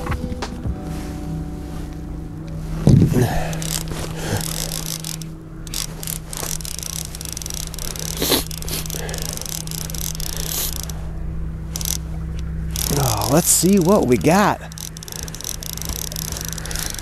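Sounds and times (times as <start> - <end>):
outboard motor idling: 0.7 - 17.0
fishing reel clicking: 3.2 - 11.1, 11.7 - 17.0.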